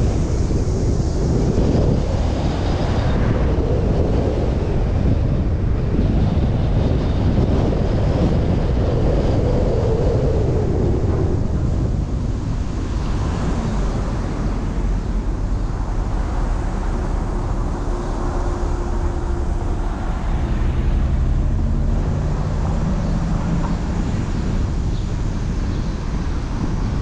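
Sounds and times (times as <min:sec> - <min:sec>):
wind rumble on microphone: 0:00.0 - 0:27.0
street traffic: 0:11.9 - 0:27.0.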